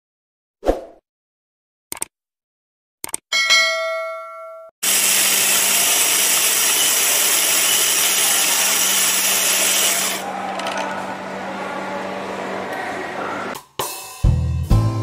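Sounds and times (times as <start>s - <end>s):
coffee grinder grinding beans: 4.8s - 10.2s.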